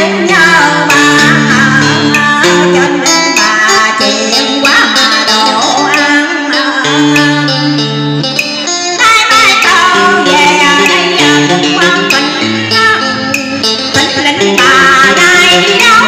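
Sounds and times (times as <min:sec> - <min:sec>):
woman singing into a microphone: 0:00.0 - 0:07.9, 0:08.8 - 0:16.0
instrumental backing with plucked notes: 0:00.0 - 0:16.0.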